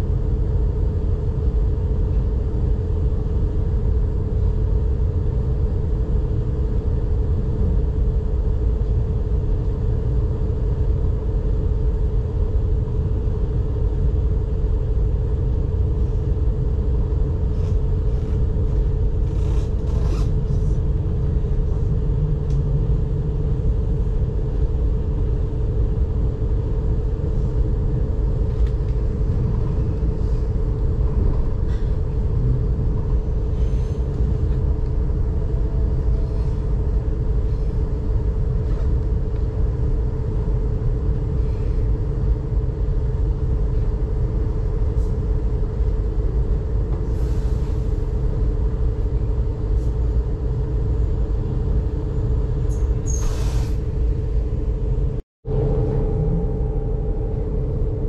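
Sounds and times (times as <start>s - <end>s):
constant train hum: 0.0s - 58.0s
train wheels rumbling on track: 12.8s - 50.4s.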